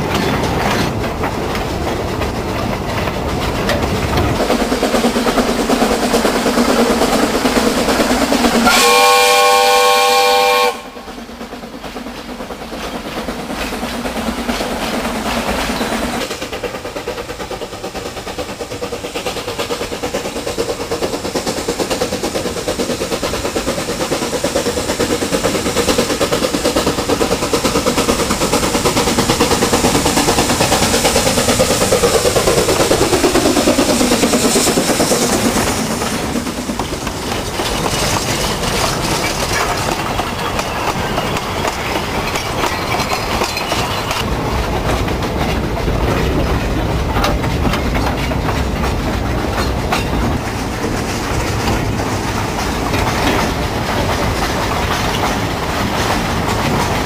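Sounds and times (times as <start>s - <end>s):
wagon wheels rattling on track: 0.0s - 8.8s, 10.9s - 57.0s
steam locomotive running: 0.0s - 57.0s
steam whistle chord: 8.6s - 11.0s.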